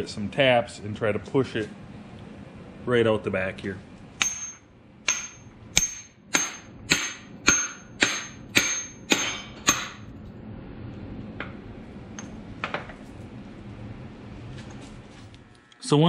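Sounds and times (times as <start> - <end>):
hammer striking metal: 4.2 - 10.1.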